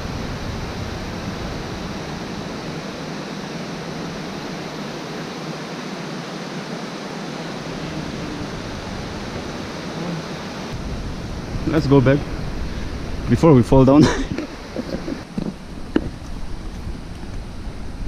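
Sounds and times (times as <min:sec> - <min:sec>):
stream rushing: 0:00.0 - 0:18.0.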